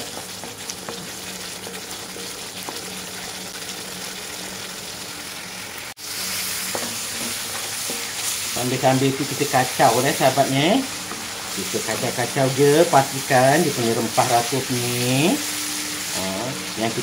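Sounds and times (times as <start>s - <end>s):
wooden spatula stirring: 0.0s - 3.1s, 6.1s - 16.1s
paste sizzling in oil: 0.0s - 17.0s.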